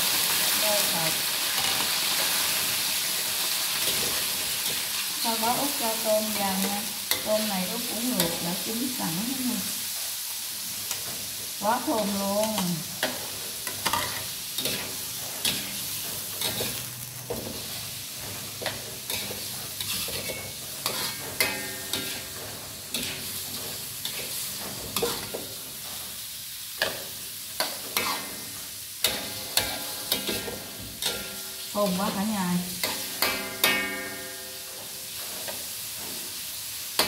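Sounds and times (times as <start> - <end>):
seafood sizzling in oil: 0.0 - 37.0
metal spatula scraping a wok: 9.8 - 37.0.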